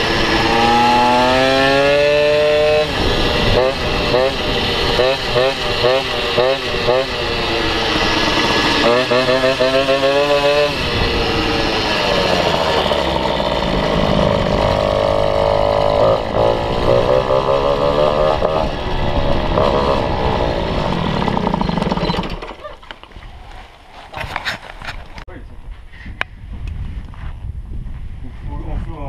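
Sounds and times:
moped engine revving: 0.0s - 22.7s.

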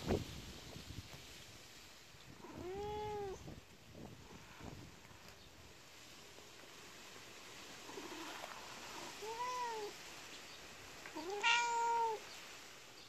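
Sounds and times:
cat meowing: 2.4s - 3.4s, 9.1s - 10.0s, 11.1s - 12.2s.

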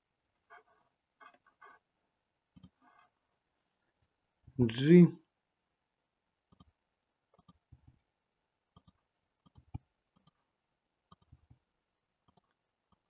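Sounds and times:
computer mouse clicking: 2.5s - 2.9s, 6.5s - 6.7s, 7.3s - 7.6s, 8.7s - 10.4s, 11.1s - 11.6s, 12.2s - 13.0s.

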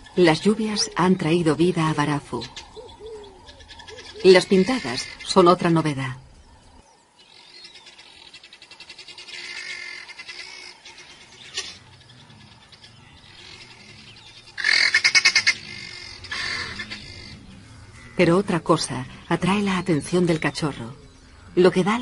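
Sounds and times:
guineafowl rattling cackles: 2.5s - 5.2s, 13.4s - 17.4s.

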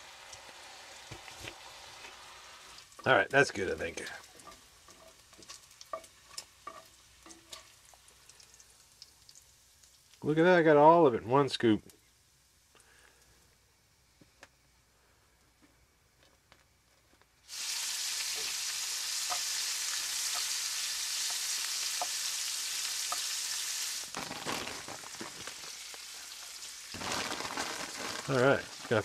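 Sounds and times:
onion sizzling in a pan: 0.0s - 10.5s, 17.4s - 29.0s.

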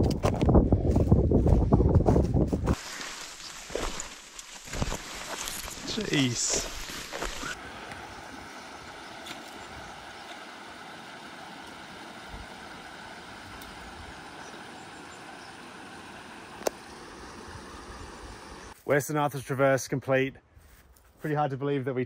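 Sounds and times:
outdoor background hiss: 2.8s - 20.0s.

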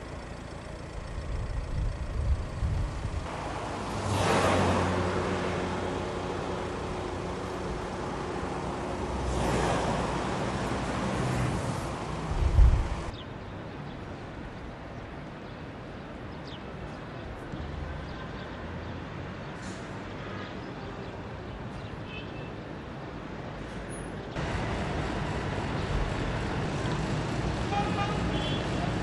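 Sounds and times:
road traffic passing: 0.0s - 29.0s
wind on microphone: 1.4s - 3.3s, 12.2s - 13.1s.

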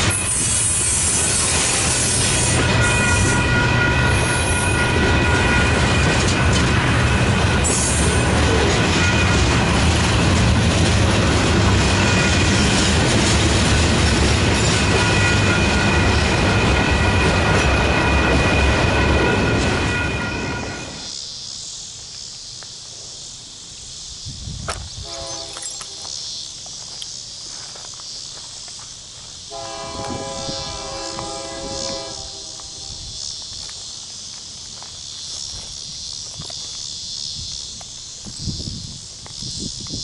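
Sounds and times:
insects buzzing: 0.0s - 18.8s, 19.8s - 40.0s
freight train passing: 0.0s - 40.0s
distant locomotive horn: 2.0s - 9.8s, 11.8s - 12.7s, 14.6s - 21.1s, 25.0s - 26.0s, 29.5s - 33.0s.

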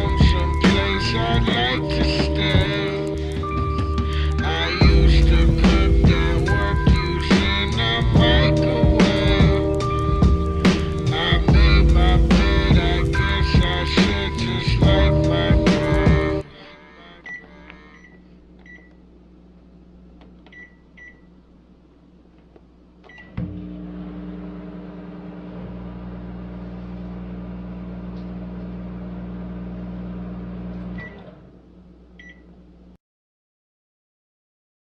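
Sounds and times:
microwave oven humming: 0.0s - 33.0s
microwave beep: 17.2s - 19.0s, 20.5s - 21.3s, 23.1s - 24.6s, 30.6s - 31.3s, 32.2s - 32.5s
microwave keypad beeps: 17.2s - 19.0s, 20.5s - 21.3s, 32.2s - 32.5s.

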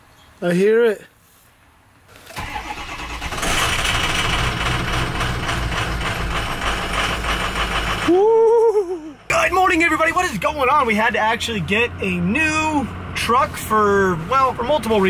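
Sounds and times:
starter motor cranking: 2.2s - 8.1s
truck engine idling: 2.4s - 15.0s.

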